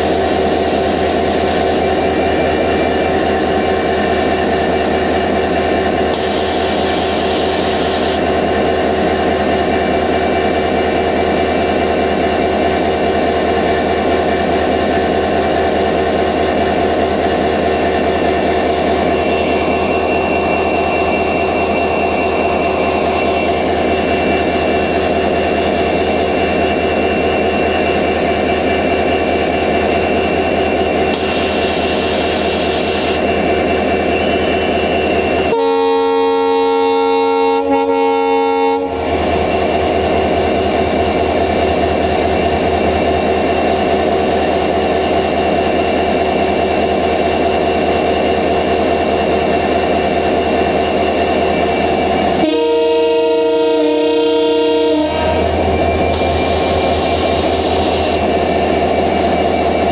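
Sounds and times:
diesel locomotive engine running: 0.0 - 59.9
multi-tone train horn blast: 35.5 - 39.0, 52.4 - 55.5.

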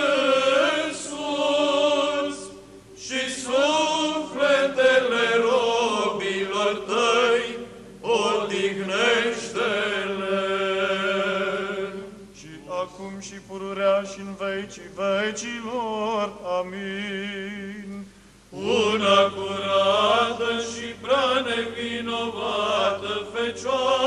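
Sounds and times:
male choir chanting over drone: 0.0 - 17.1, 18.6 - 24.0.

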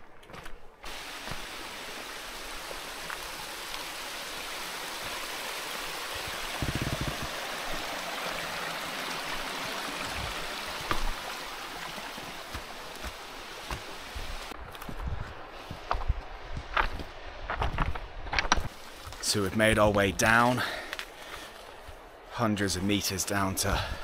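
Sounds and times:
running water rushing: 0.8 - 14.6.

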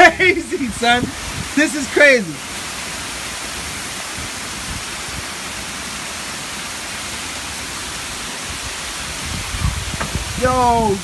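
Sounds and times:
heavy rain pouring: 0.0 - 11.0
low thumps: 9.3 - 10.4.

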